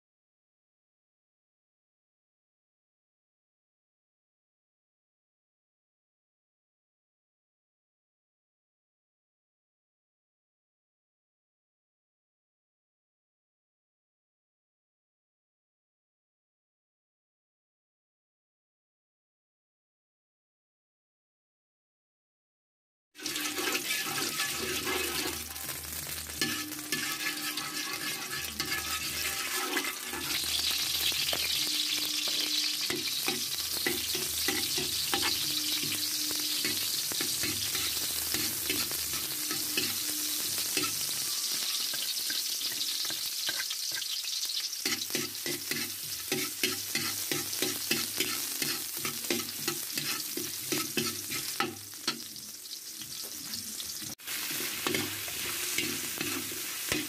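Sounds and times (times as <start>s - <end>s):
metal spatula scraping pan: 23.2s - 44.1s, 44.8s - 52.4s, 54.3s - 57.0s
onion sizzling in hot oil: 23.2s - 57.0s.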